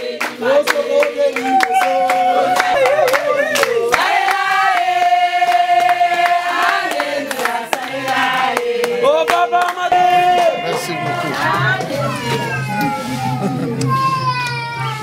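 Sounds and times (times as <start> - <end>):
group singing long held notes: 0.0 - 13.8
hand claps: 0.1 - 11.0.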